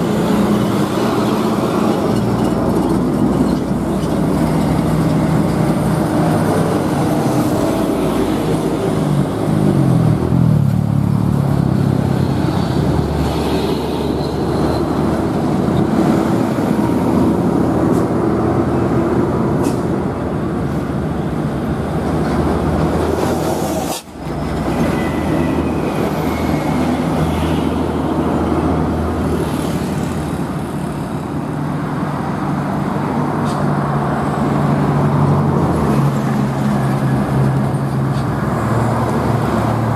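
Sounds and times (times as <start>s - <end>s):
diesel trucks driving past: 0.0s - 39.9s.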